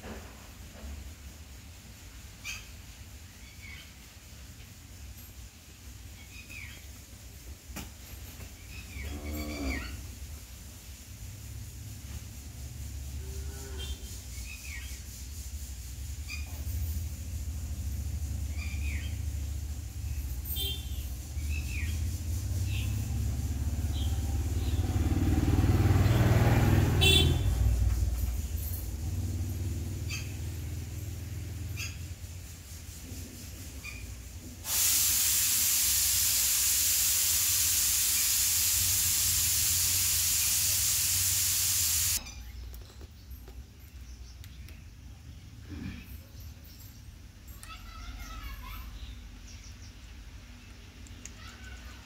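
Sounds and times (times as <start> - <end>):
loud steady hiss: 0.0 - 26.2, 30.8 - 42.2
low engine-like rumble: 16.2 - 32.4.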